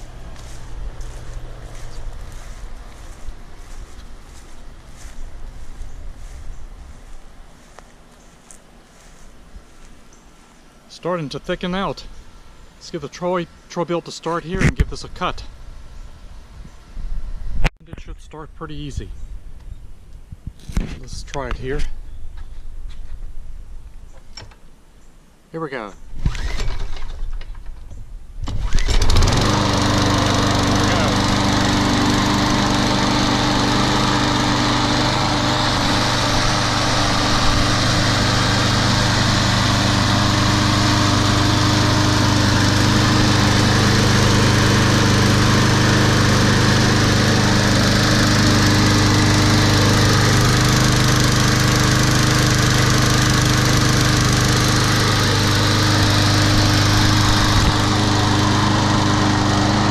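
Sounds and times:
lawn mower engine running: 0.0s - 9.8s, 26.3s - 27.2s, 28.5s - 59.9s
recoil starter pull: 26.2s - 27.2s, 28.5s - 30.0s.

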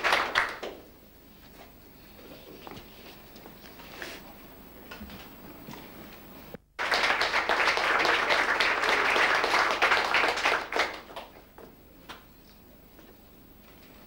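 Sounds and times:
audience applause: 0.0s - 0.8s, 6.8s - 11.5s.

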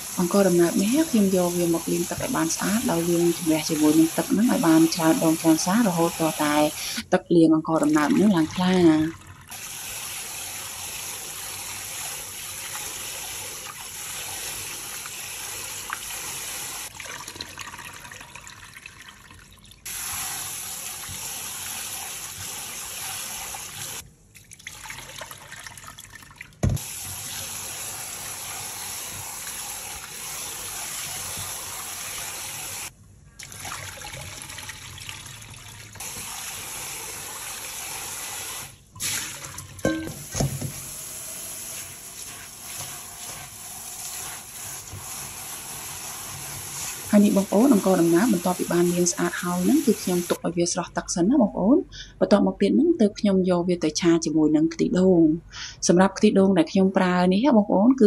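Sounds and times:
water running from tap: 0.0s - 7.0s, 7.8s - 24.0s, 24.6s - 50.4s.

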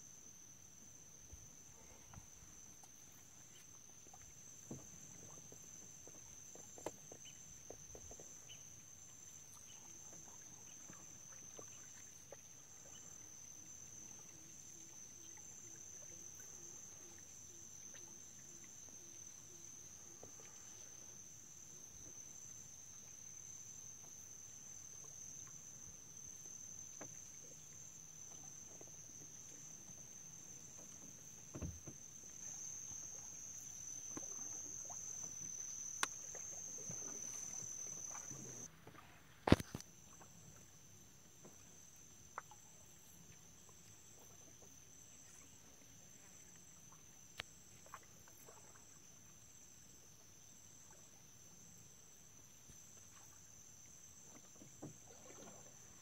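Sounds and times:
insect chorus trilling: 0.0s - 38.7s
faint low boat rumble: 0.0s - 56.0s.

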